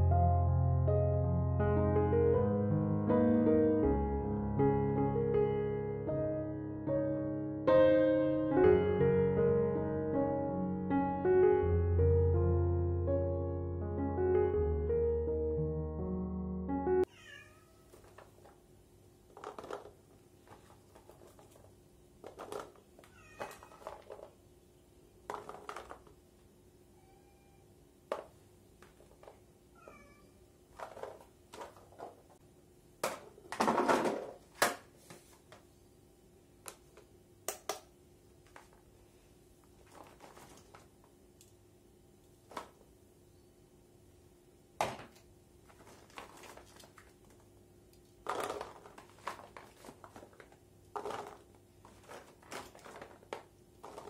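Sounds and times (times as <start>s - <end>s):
cat meowing: 17.0s - 18.0s, 23.0s - 24.0s, 27.0s - 27.7s, 29.8s - 30.4s
vegetables dropped into a tray: 19.3s - 24.4s, 25.3s - 26.2s, 30.8s - 32.3s, 33.0s - 34.9s, 39.8s - 40.9s, 42.5s - 42.8s, 44.8s - 47.4s, 48.2s - 54.0s.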